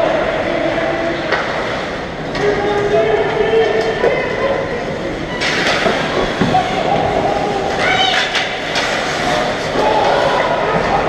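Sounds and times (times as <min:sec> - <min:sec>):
skates scraping on ice: 0:05.4 - 0:11.0.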